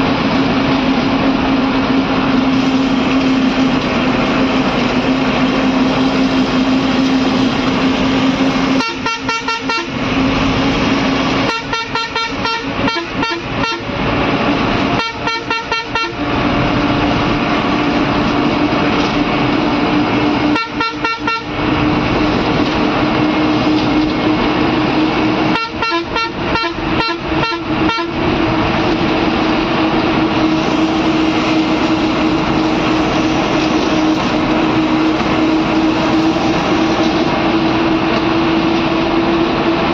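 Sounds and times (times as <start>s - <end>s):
bus engine droning: 0.0s - 39.9s
horn stuttering bursts: 8.7s - 10.0s, 11.4s - 13.9s, 14.9s - 16.3s, 20.5s - 21.6s, 25.5s - 28.2s.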